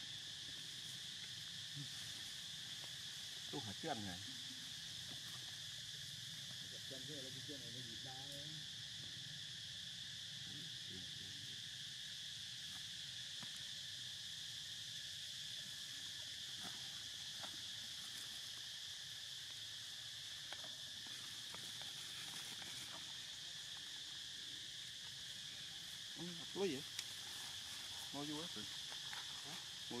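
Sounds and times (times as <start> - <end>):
insect chorus buzzing: 0.0 - 30.0
faint ticks: 26.9 - 27.2.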